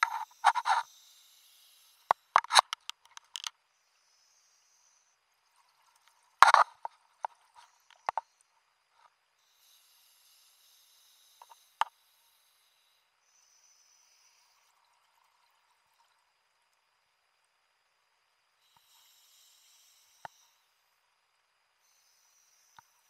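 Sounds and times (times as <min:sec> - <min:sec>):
regulator inhale hiss: 0:00.0 - 0:02.5, 0:09.4 - 0:14.8, 0:18.6 - 0:21.0, 0:21.8 - 0:23.0.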